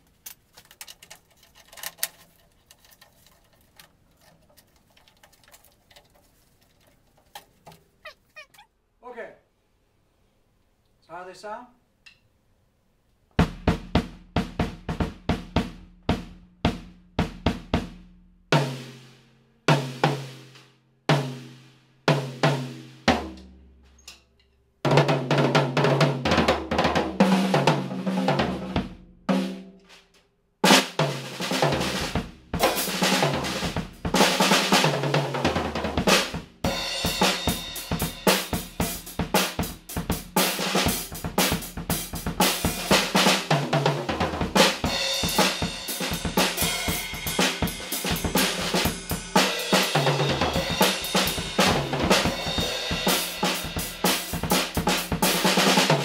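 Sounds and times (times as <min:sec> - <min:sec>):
drum kit being played: 0:24.9 - 0:56.0
cymbals and hi-hat: 0:36.2 - 0:43.5, 0:44.6 - 0:56.0.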